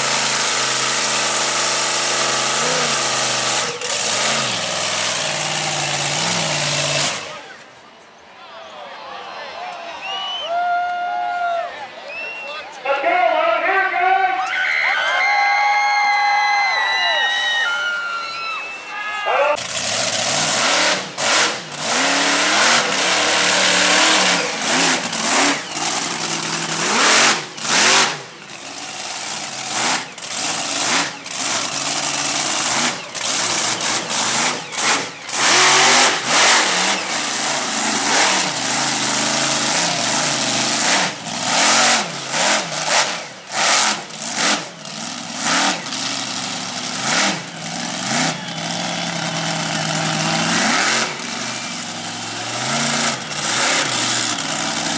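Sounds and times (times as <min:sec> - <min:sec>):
monster truck engine revving: 0:00.0 - 0:07.8, 0:19.5 - 0:54.9.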